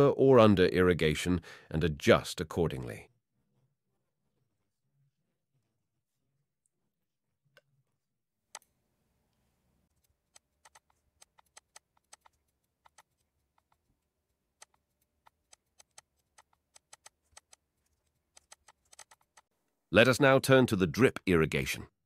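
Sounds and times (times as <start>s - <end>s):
computer mouse clicks: 10.0s - 13.9s, 14.6s - 19.5s.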